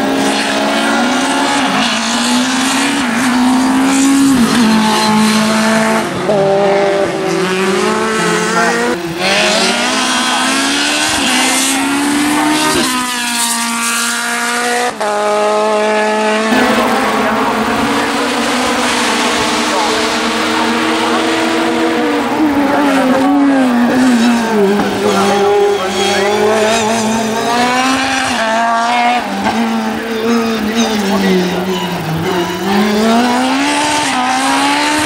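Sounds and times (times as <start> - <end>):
racing car engines revving: 0.0 - 35.0.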